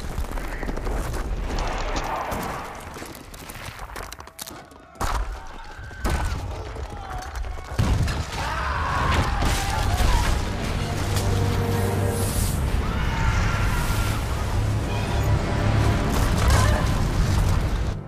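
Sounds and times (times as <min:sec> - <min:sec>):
heavy cracking hits: 0:00.0 - 0:11.5.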